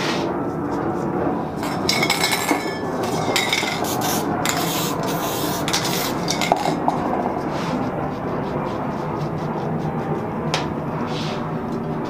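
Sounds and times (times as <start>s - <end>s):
metal cans clinking: 1.6s - 4.8s, 5.6s - 7.1s
aerosol spray hissing: 3.6s - 6.7s.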